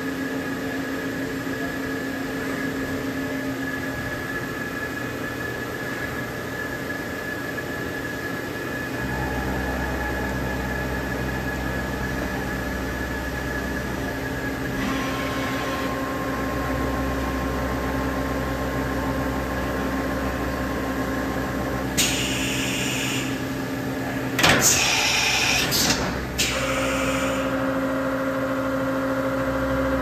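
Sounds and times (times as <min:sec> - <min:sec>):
machine hum with high whine: 0:00.0 - 0:30.0
steady machine whine: 0:00.0 - 0:30.0.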